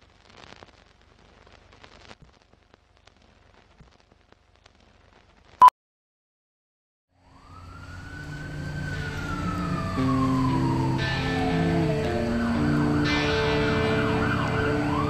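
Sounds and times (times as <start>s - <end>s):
film crackle: 0.0s - 5.6s, 7.4s - 15.0s
long rising and falling tone: 7.3s - 15.0s
low notes: 9.0s - 15.0s.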